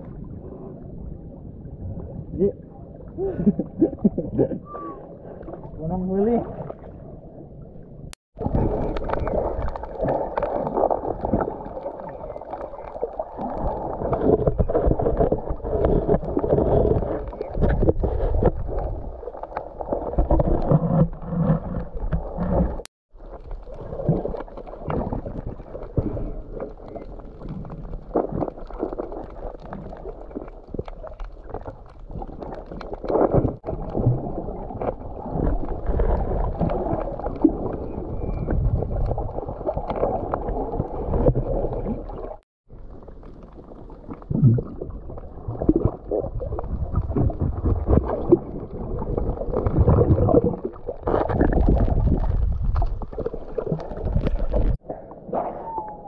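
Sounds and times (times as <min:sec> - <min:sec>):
muffled underwater sloshing: 0:00.0 - 0:56.0.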